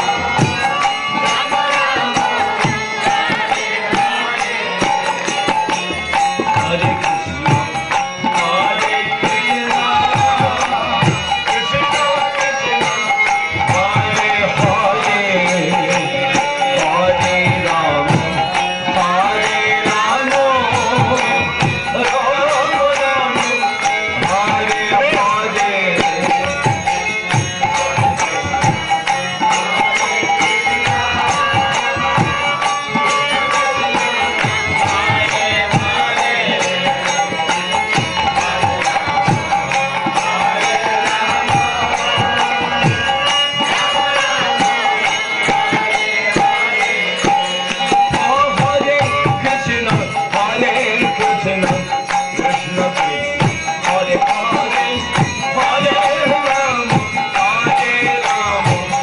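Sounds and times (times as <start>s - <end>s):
chanting voices: 0.0s - 59.0s
drum and percussion beat: 0.0s - 59.0s.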